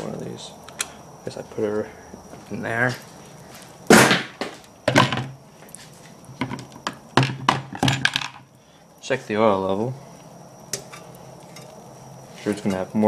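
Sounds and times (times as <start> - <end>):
objects knocking on wooden bench: 3.9 - 5.4, 6.4 - 8.4.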